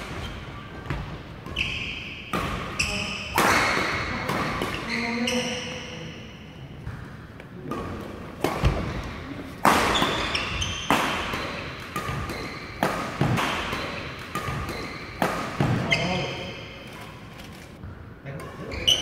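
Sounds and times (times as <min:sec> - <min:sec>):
shoes squeaking on court floor: 0:00.0 - 0:06.2, 0:07.8 - 0:17.9, 0:18.5 - 0:19.0
rackets striking shuttlecock: 0:06.8 - 0:19.0.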